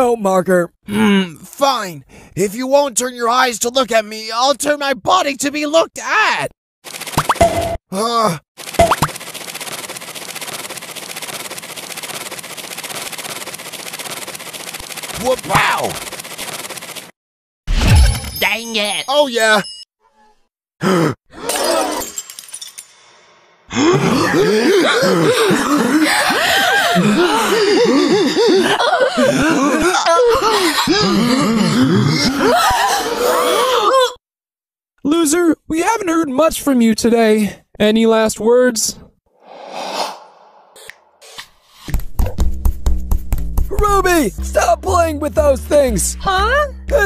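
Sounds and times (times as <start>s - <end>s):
rapid rattling scrape: 8.6s - 17.1s
cartoon voices laughing: 23.9s - 33.9s.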